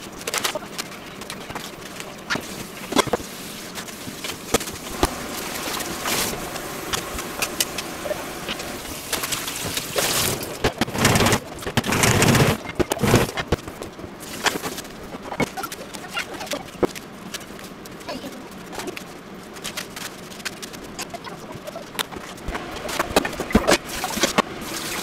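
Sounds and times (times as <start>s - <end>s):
lettuce leaves rustling and tearing: 8.9s - 25.0s.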